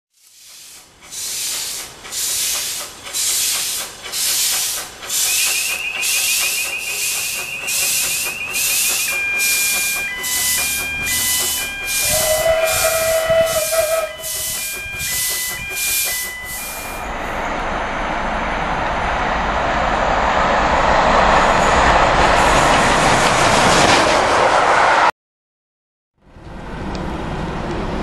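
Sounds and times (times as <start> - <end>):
steam locomotive chuffing: 0.3 - 17.9
steam whistle blast: 5.2 - 17.1.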